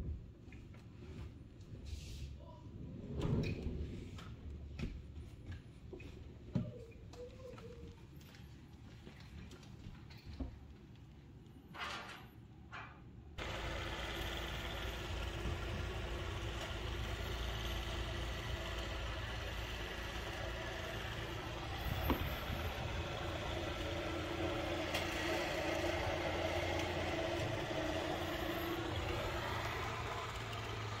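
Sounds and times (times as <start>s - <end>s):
engine running: 13.4s - 31.0s.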